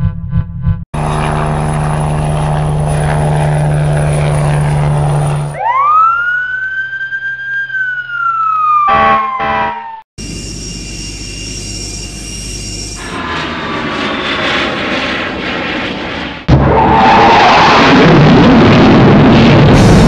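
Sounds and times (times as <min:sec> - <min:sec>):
engine drone: 0:00.0 - 0:20.0
jet engine running: 0:01.0 - 0:06.0, 0:10.2 - 0:20.0
fire engine siren wailing: 0:04.0 - 0:10.0
horn blasts: 0:08.9 - 0:10.0.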